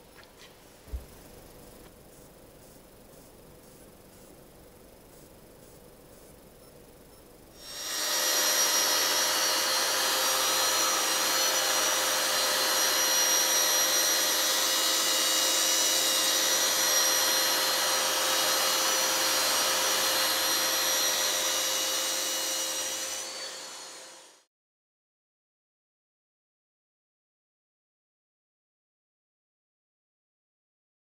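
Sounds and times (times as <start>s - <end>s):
power tool motor whining: 7.6s - 24.4s.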